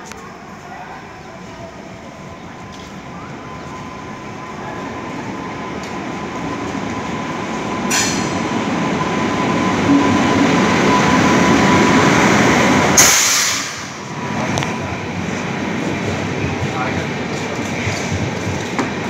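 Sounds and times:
train wheels rumbling on rail: 0:00.0 - 0:19.0
loud hiss burst: 0:13.0 - 0:14.0.

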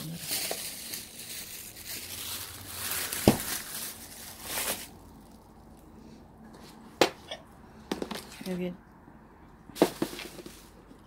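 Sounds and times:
plastic rustling: 0:00.0 - 0:05.8, 0:09.8 - 0:11.0.

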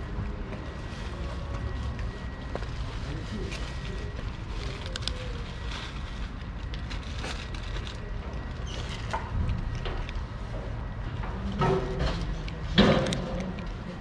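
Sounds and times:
cat crunching dry kibble: 0:04.4 - 0:08.1.

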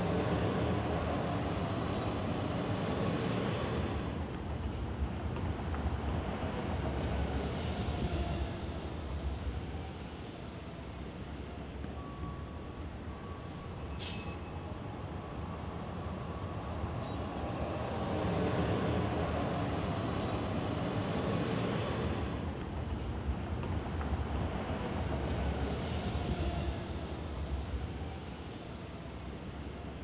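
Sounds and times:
low rumble of city vehicles: 0:00.0 - 0:30.0.

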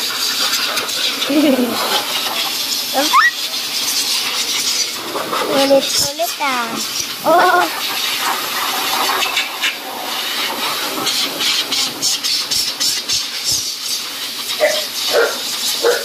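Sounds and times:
blow dryer rushing hiss: 0:00.8 - 0:16.0.

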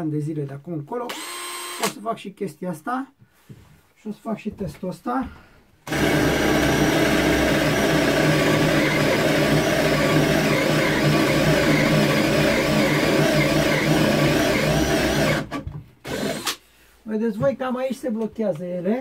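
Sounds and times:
cordless drill boring into wood: 0:01.1 - 0:02.0, 0:05.9 - 0:16.6.

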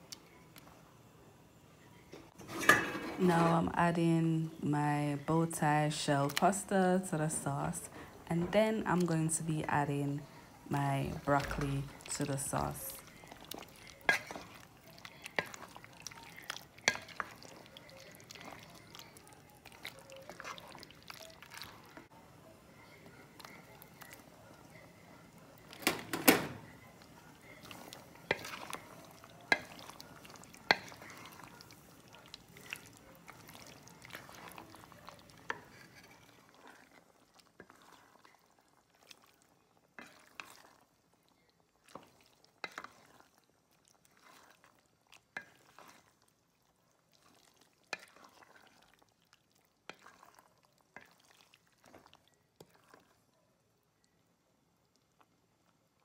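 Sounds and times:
spoon clacking and scraping pot: 0:02.3 - 0:03.8, 0:05.2 - 0:22.1, 0:22.7 - 0:40.9, 0:41.8 - 0:46.2, 0:47.2 - 0:49.0, 0:49.8 - 0:53.2
wooden spoon stirring thick sauce: 0:02.3 - 0:54.2.

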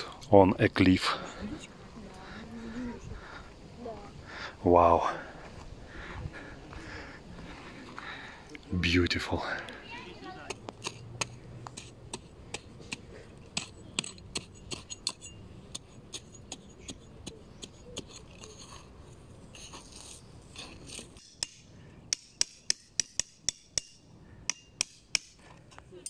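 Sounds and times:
hatchet chopping into soil: 0:10.4 - 0:18.2
hatchet knocking on metal legs: 0:21.2 - 0:25.4.

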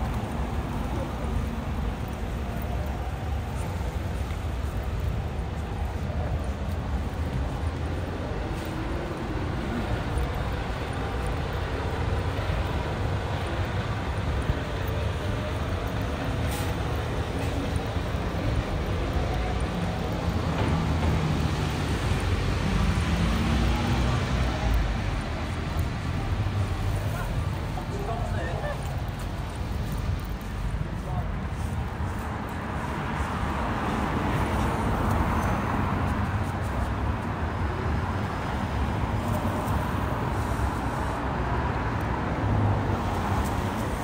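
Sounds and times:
traffic on wet road: 0:00.0 - 0:44.0.

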